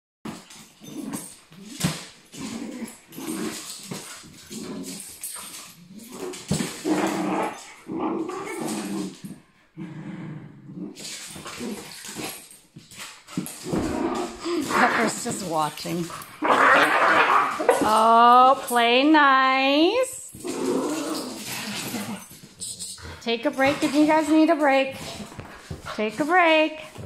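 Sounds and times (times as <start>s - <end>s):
small dogs growling: 0.8s - 5.2s, 5.8s - 12.4s, 13.6s - 18.2s, 20.3s - 24.2s
knocks and scuffles on floor: 23.6s - 27.0s.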